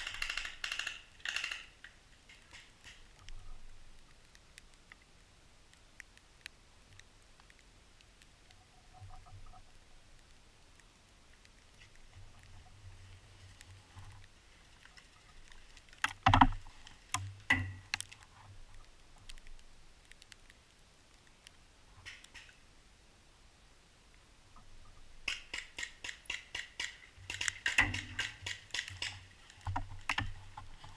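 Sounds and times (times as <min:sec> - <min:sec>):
faint ticks: 0:00.0 - 0:22.7, 0:24.0 - 0:30.9
close knocks and clatters: 0:16.0 - 0:17.8.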